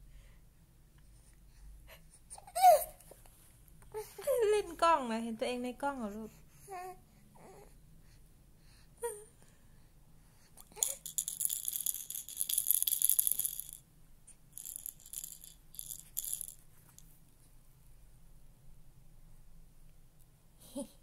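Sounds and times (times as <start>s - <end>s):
toy rattle shaken: 10.6s - 13.8s, 14.5s - 17.1s.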